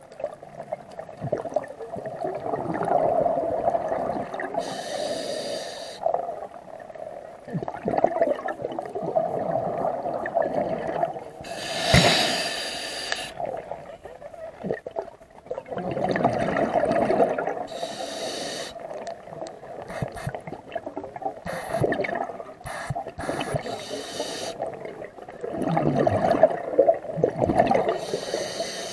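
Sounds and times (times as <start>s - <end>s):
diver breathing through regulator: 4.6s - 6.0s, 11.4s - 13.4s, 17.7s - 18.8s, 19.9s - 20.4s, 21.5s - 22.0s, 22.7s - 24.6s, 27.9s - 28.9s
air bubbling underwater: 19.9s - 23.7s.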